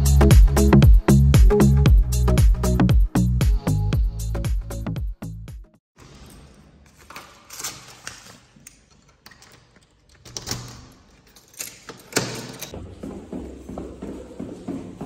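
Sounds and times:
door handle and lock clicking: 6.2s - 12.7s
footsteps: 12.4s - 15.0s.

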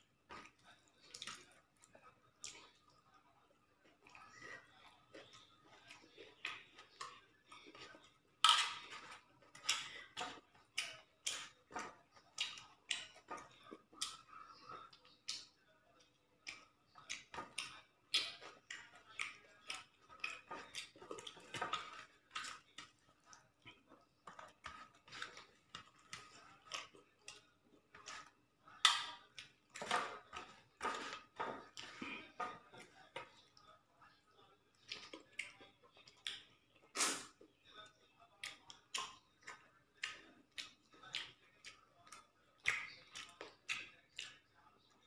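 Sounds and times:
wet chewing and lip smacks: 3.8s - 30.5s, 34.7s - 37.1s, 38.4s - 44.6s
fingers mixing food on metal plate: 4.7s - 36.5s.

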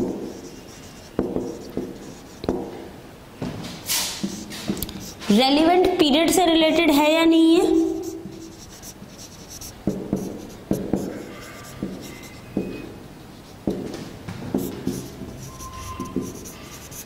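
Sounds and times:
marker writing on whiteboard: 0.0s - 2.8s, 3.9s - 5.4s, 7.6s - 17.0s
marker squeak: 7.8s - 13.6s, 14.6s - 17.0s.

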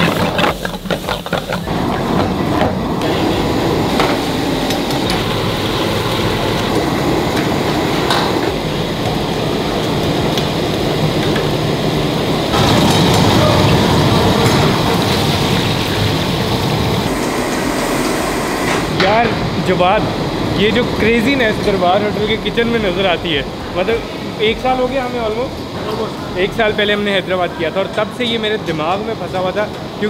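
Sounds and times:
food sizzling in hot oil: 0.0s - 2.1s, 3.0s - 19.0s
metal ladles knocking on woks: 0.0s - 2.8s
gas wok burners roaring: 0.0s - 30.0s.

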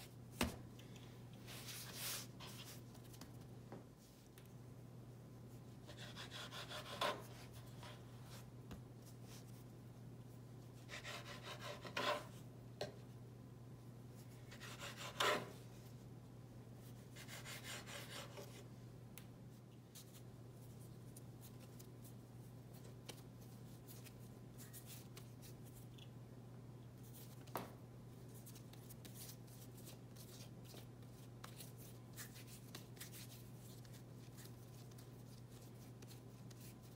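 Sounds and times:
low steady hum: 0.0s - 36.9s
knife scraping cutting board: 14.5s - 15.5s.

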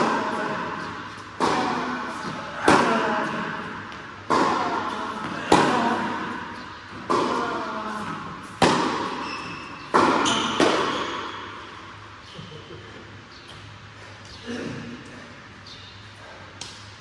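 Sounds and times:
racket hitting tennis ball: 0.0s - 11.8s
tennis ball bouncing: 0.0s - 11.8s.

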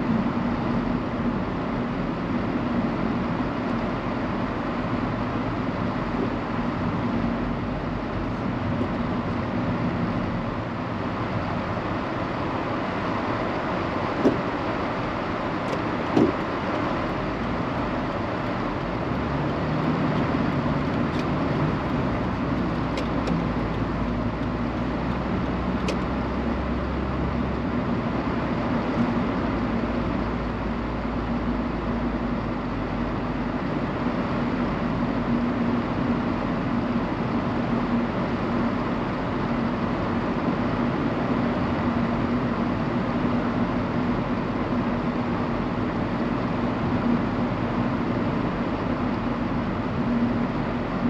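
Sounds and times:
low engine hum: 0.0s - 51.0s
road and tyre noise: 0.0s - 51.0s.

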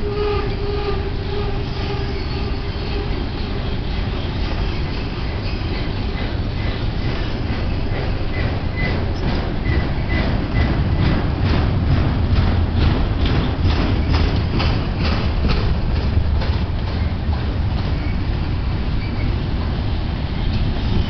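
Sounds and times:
freight train rumbling: 0.0s - 21.0s
wheels clicking over rail joints: 1.3s - 21.0s
faint high brake squeal: 1.5s - 6.0s, 19.0s - 19.4s.

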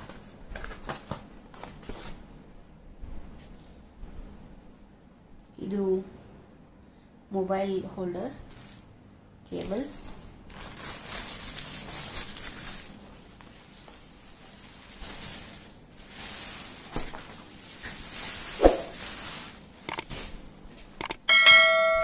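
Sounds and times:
bubble wrap rustling and crinkling: 0.0s - 2.2s, 8.4s - 21.0s
sound effect clicks: 19.9s - 20.1s, 21.0s - 21.2s
bell chime: 21.3s - 22.0s.

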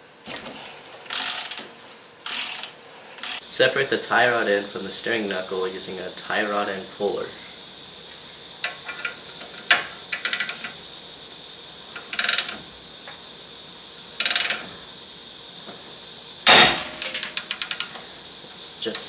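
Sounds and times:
steady hiss: 0.0s - 19.0s
hand ratchet clicking: 1.1s - 3.4s, 8.6s - 10.8s, 12.0s - 12.6s, 14.2s - 14.7s, 16.5s - 18.0s.

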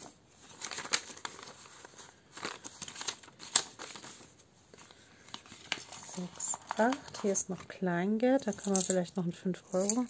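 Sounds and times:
paper banknotes rustling: 0.0s - 7.4s.

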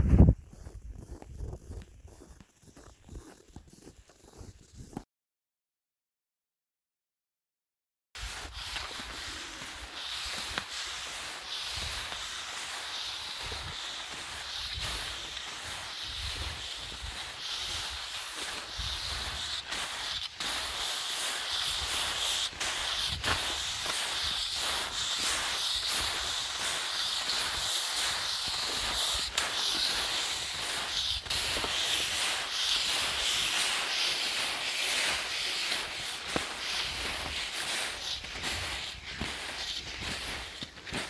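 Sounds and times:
footsteps crunching through snow: 0.0s - 5.0s, 8.2s - 41.0s
steady hiss: 8.2s - 41.0s.

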